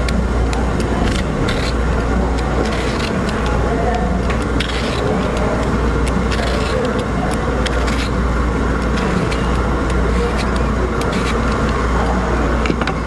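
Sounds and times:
peeler scraping pear skin: 0.0s - 11.9s.

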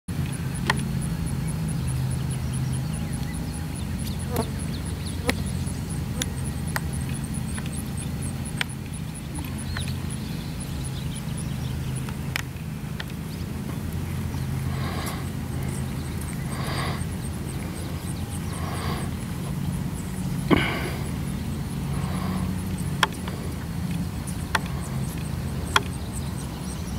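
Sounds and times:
steady low hum: 0.1s - 26.9s
sharp clicks: 22.0s - 26.2s.

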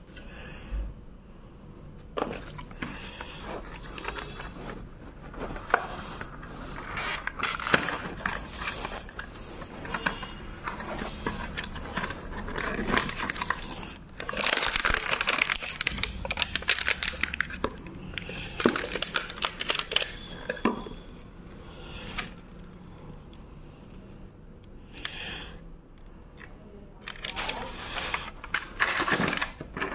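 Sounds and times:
packaging rustling and crinkling: 2.2s - 20.9s, 27.0s - 29.9s.

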